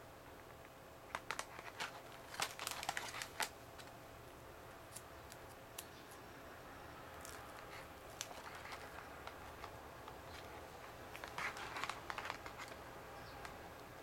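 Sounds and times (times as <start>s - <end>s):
plastic crinkling: 1.0s - 4.0s, 7.1s - 14.0s
plastic packaging clicking: 1.1s - 4.0s, 7.2s - 14.0s.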